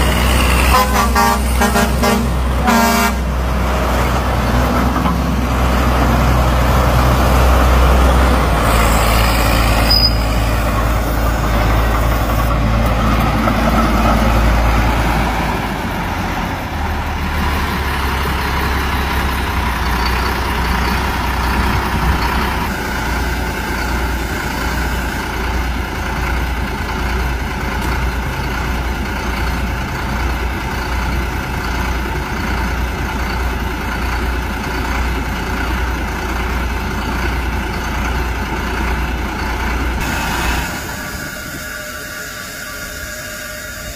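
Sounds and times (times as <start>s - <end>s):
tractor engine rumbling: 0.0s - 43.9s
hiss: 8.6s - 11.3s, 40.0s - 43.9s.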